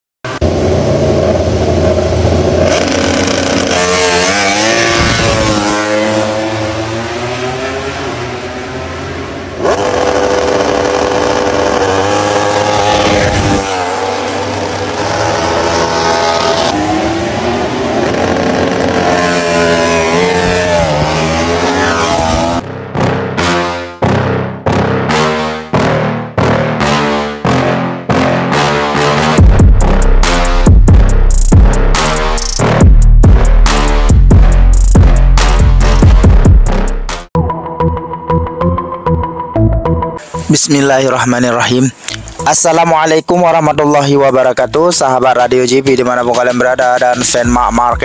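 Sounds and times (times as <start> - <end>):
motorcycle engine revving: 0.3 - 23.4.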